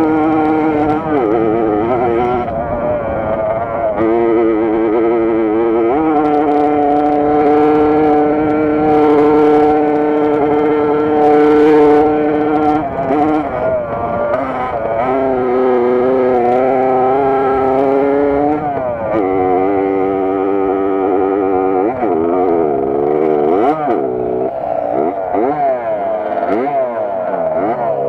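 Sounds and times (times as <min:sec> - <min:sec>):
moped engine revving high: 0:00.0 - 0:28.0.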